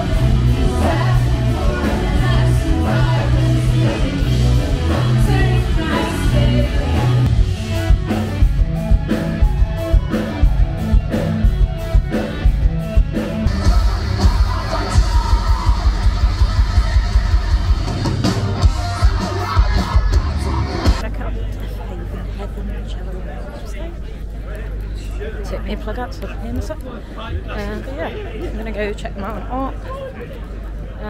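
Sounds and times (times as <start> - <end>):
person singing: 0.0 - 7.3
live rock band: 0.0 - 21.1
steady drum beat: 0.0 - 21.1.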